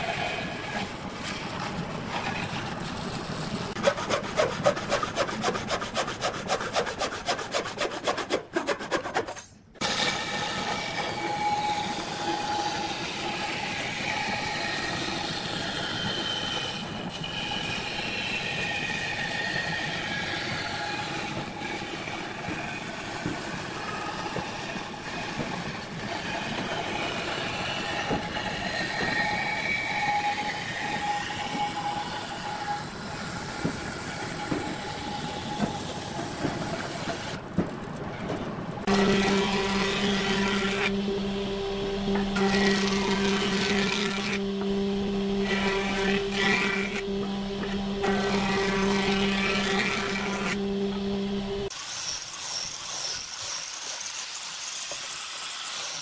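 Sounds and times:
band saw cutting wood: 0.0 - 37.4, 38.8 - 56.0.

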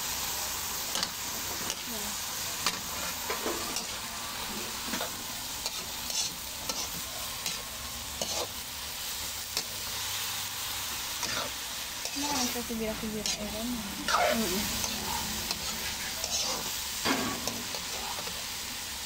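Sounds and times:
vegetables sizzling in oil: 0.0 - 19.0
spatula scraping and clinking on wok: 14.1 - 18.4.

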